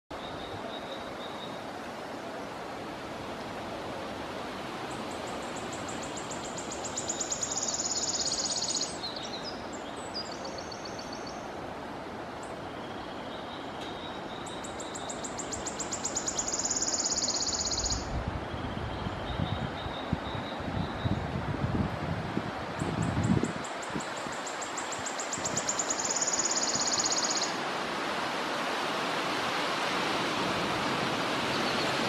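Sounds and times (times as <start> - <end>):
background hiss: 0.2 - 18.5, 21.4 - 32.0
bird trilling song: 5.4 - 11.4, 12.7 - 21.2, 24.1 - 27.6.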